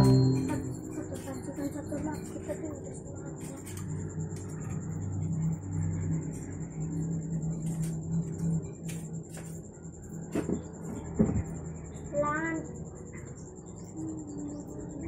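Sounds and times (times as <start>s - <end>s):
thin high-pitched tone: 0.0s - 2.8s.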